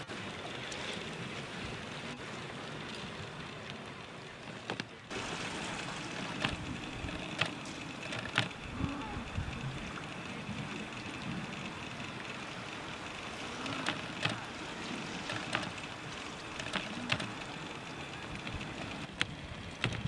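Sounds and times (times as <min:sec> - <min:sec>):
water at the shore: 0:00.0 - 0:20.0
wind: 0:00.0 - 0:20.0
sharp clicks: 0:06.4 - 0:12.3, 0:13.5 - 0:15.9, 0:16.5 - 0:20.0.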